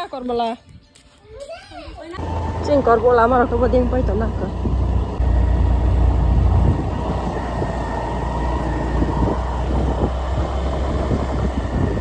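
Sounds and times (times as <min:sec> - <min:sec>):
motor scooter engine running: 0:02.2 - 0:12.0.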